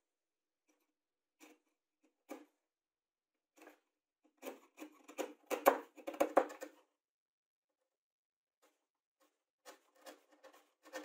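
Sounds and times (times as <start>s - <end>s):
chisel scraping wood: 3.6s - 6.8s, 8.6s - 11.0s.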